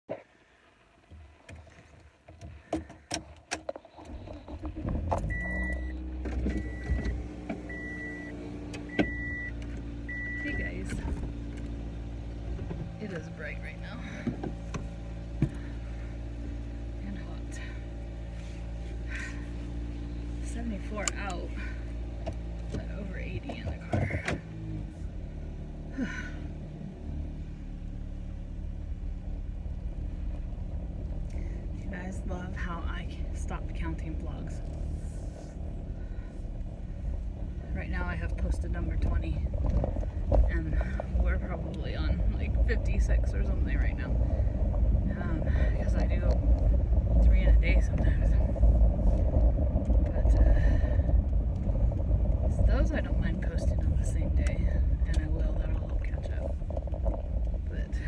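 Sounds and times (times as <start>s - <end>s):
car engine starting and idling: 0.0s - 58.0s
dashboard warning chime: 5.2s - 11.0s.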